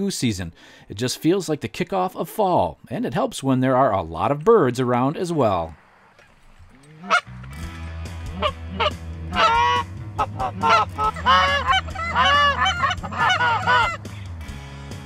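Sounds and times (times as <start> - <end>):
geese honking: 6.9 - 7.4, 8.2 - 14.0.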